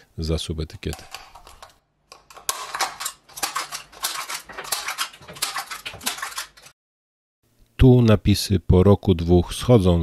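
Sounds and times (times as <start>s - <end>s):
scissors cutting plastic cup: 1.0s - 6.7s.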